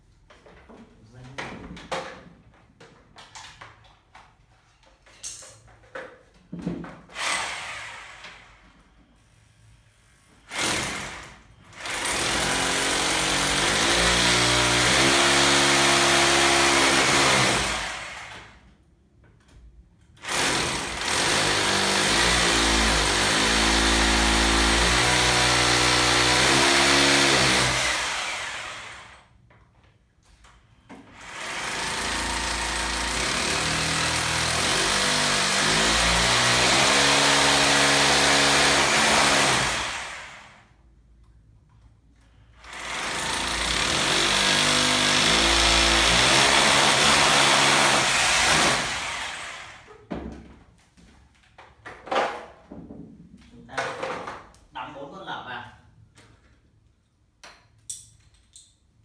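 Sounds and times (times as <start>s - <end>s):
electric drill boring into wall: 7.1s - 8.6s, 10.5s - 18.6s, 20.2s - 29.3s, 31.1s - 40.7s, 42.6s - 49.9s.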